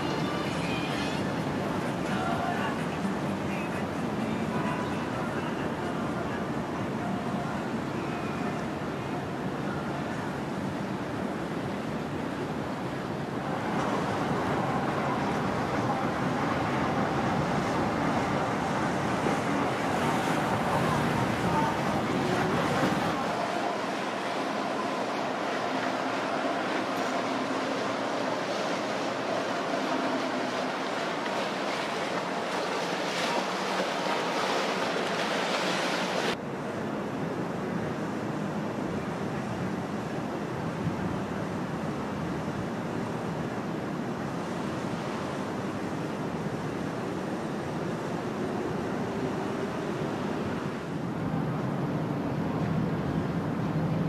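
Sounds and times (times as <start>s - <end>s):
boat engines running: 0.0s - 36.4s
water rushing: 0.0s - 54.0s.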